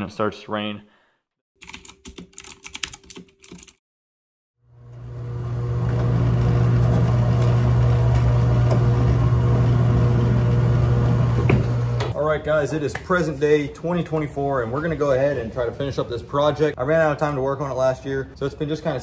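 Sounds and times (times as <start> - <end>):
keyboard typing clicks: 1.6 - 3.8.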